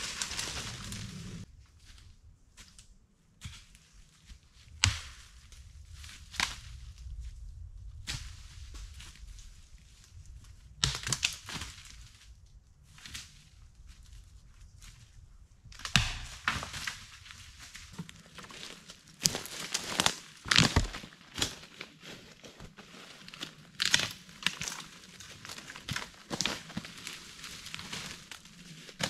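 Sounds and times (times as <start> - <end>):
footsteps in leaf litter: 0.0 - 1.5, 16.0 - 29.0
twigs crackling and snapping: 0.0 - 1.5, 8.0 - 14.0, 15.6 - 29.0.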